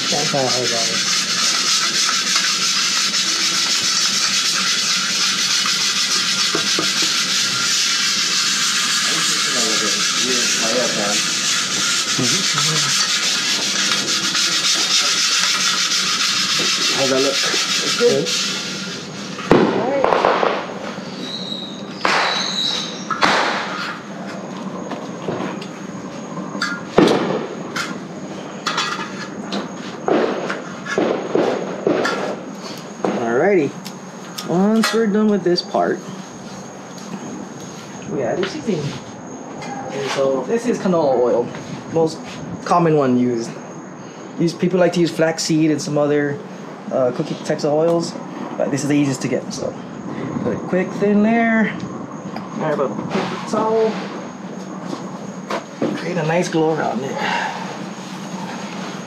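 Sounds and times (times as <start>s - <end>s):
chainmail scrubber scraping wok: 0.0s - 19.4s
sizzling hiss in wok: 0.0s - 20.0s.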